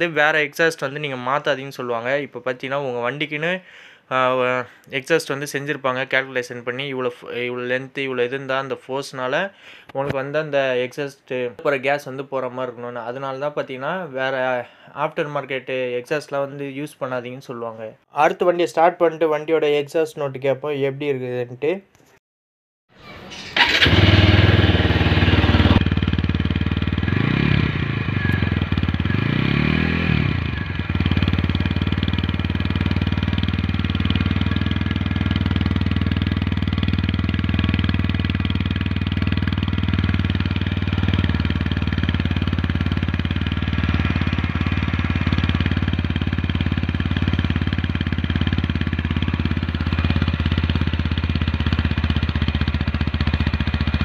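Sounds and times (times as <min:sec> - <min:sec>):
motorcycle engine revving and idling: 0:23.3 - 0:54.0.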